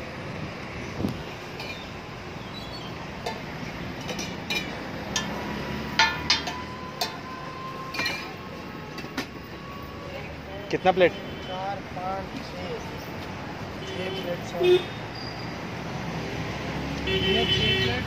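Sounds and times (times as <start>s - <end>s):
steel utensils clinking: 1.5s - 9.3s.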